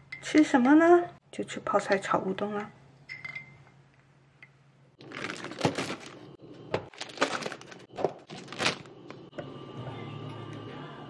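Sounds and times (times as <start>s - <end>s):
crackling and crinkling handling noise: 5.0s - 9.3s.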